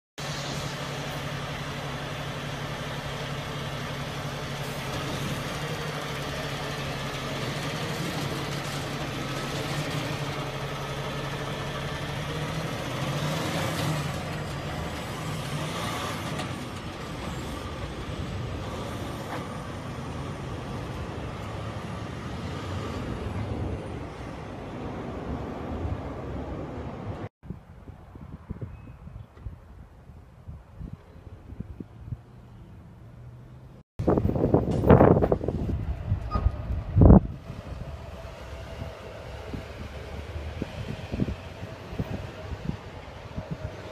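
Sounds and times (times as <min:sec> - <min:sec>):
heavy vehicle engine revving: 0:00.2 - 0:24.2.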